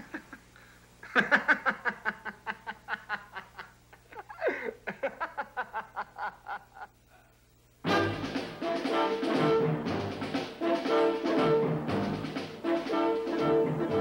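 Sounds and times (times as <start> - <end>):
boys laughing: 0.0 - 7.0.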